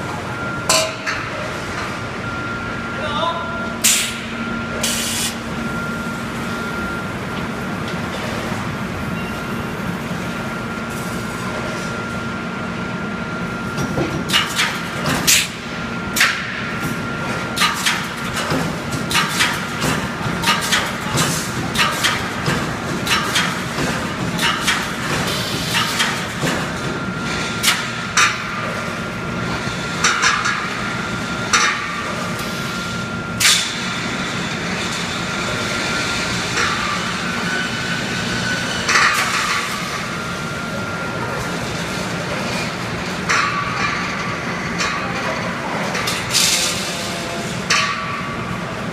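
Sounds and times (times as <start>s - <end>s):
welding machine hum and whine: 0.0s - 48.9s.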